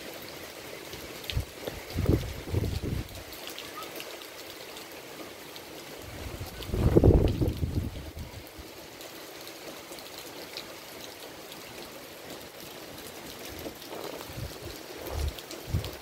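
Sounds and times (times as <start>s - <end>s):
rain falling on foliage: 0.0s - 16.0s
wind rumble on microphone: 1.3s - 3.2s, 6.1s - 8.4s, 14.0s - 16.0s.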